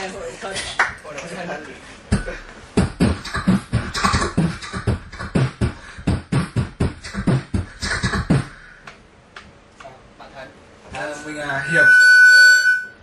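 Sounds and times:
man beatboxing: 0:02.1 - 0:08.6.

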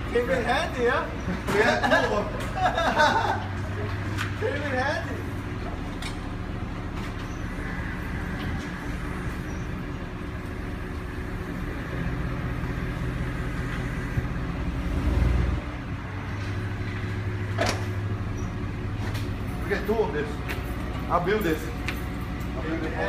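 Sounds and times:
tow truck engine humming: 0:00.0 - 0:23.0.

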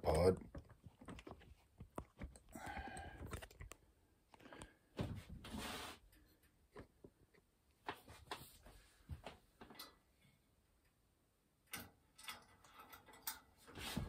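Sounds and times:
short scrape: 0:05.5 - 0:06.0.

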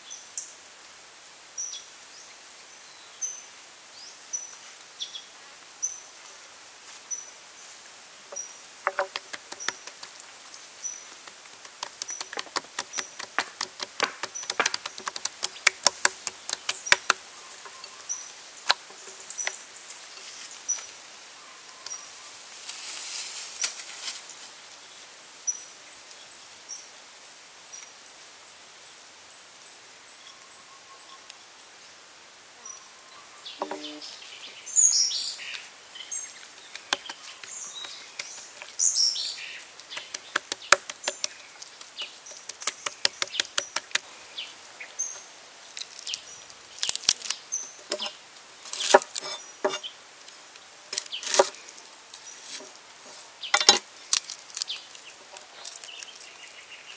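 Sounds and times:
birds chirping: 0:08.3 - 0:22.1, 0:33.0 - 0:45.4
cleaver tapping on chopping block: 0:08.9 - 0:10.1, 0:11.6 - 0:17.2, 0:33.6 - 0:34.0, 0:40.0 - 0:41.3, 0:48.9 - 0:49.8.

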